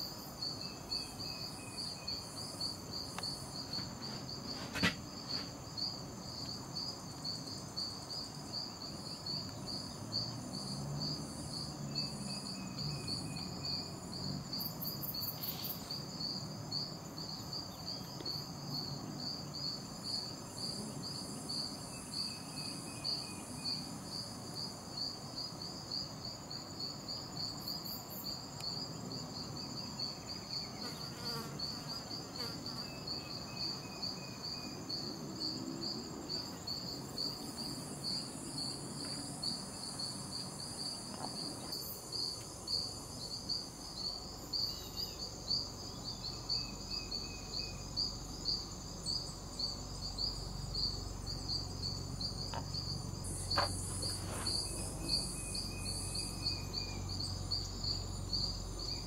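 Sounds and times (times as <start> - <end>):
insects pulsing chirp: 0.0 - 59.0
high-pitched insect buzz: 29.6 - 59.0.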